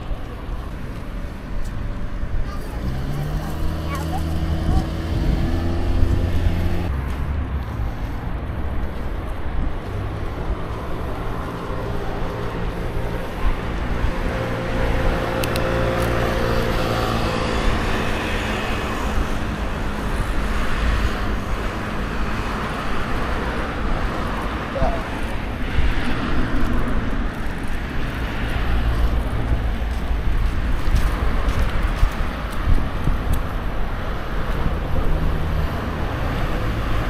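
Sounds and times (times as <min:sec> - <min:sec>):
road traffic rumble: 0:00.0 - 0:37.0.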